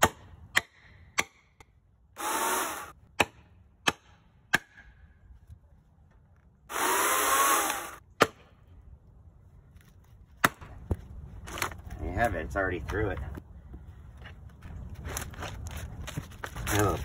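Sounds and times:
electric chainsaw motor bursts: 2.2s - 2.9s, 6.7s - 8.0s.

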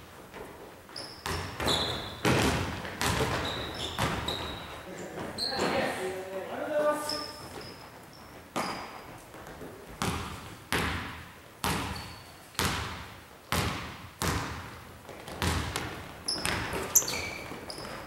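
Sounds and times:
sneaker squeaks: 0.9s - 6.0s, 6.9s - 10.4s, 11.6s - 12.7s, 15.3s - 18.0s
basketball bouncing on wood floor: 1.2s - 4.8s, 8.6s - 18.0s.

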